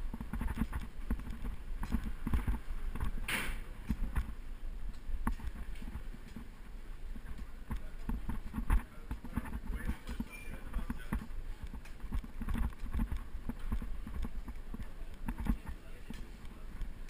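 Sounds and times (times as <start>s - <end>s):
camera rattling and knocking: 0.0s - 4.4s, 7.2s - 15.8s
wind rumble on microphone: 0.0s - 10.0s, 10.8s - 15.8s.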